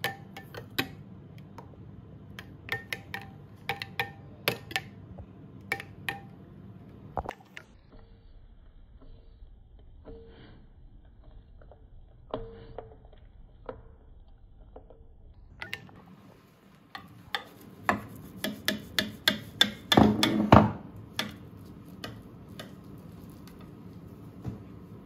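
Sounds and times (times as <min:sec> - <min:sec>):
knife tapping and scraping glass dish: 0:00.0 - 0:01.0, 0:02.4 - 0:05.0, 0:16.9 - 0:23.7
spoon stirring gravy in bowl: 0:00.0 - 0:06.4, 0:15.6 - 0:25.0.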